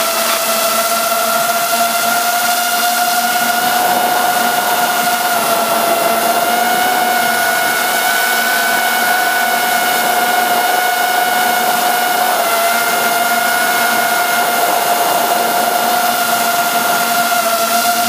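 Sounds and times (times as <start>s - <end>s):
drone propellers whining: 0.5s - 18.0s.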